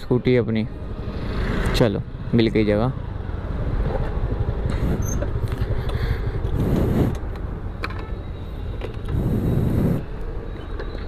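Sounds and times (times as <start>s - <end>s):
street traffic rumble: 0.0s - 11.0s
vehicles passing: 0.0s - 11.0s.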